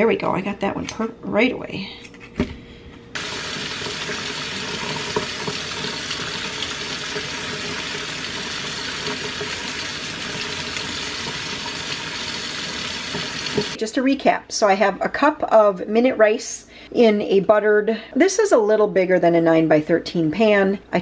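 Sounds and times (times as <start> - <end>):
faucet water running into sink: 3.2 - 13.8.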